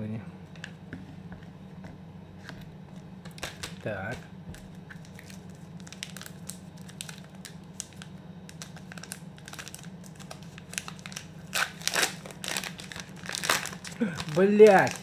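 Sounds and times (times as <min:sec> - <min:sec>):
chocolate wrapper crinkling: 0:05.0 - 0:15.0.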